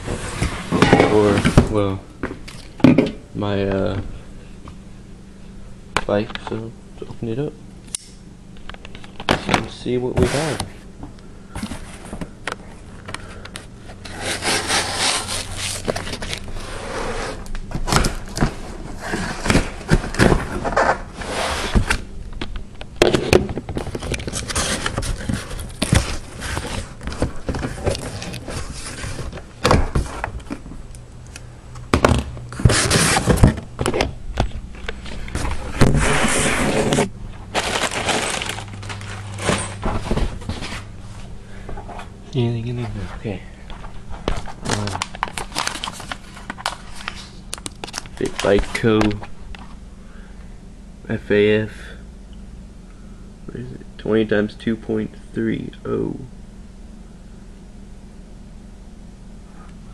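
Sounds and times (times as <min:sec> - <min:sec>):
cardboard and tape tearing: 0:14.0 - 0:18.4, 0:32.5 - 0:33.6, 0:35.3 - 0:39.8.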